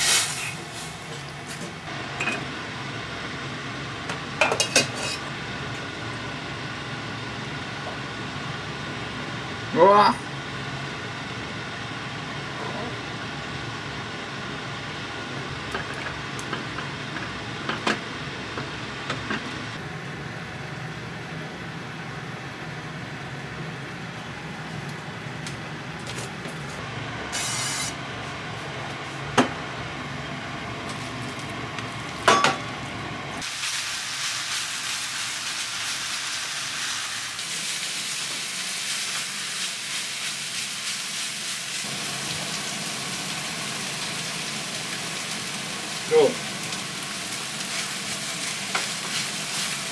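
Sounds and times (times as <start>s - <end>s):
meat sizzling in frying pan: 33.4s - 49.9s.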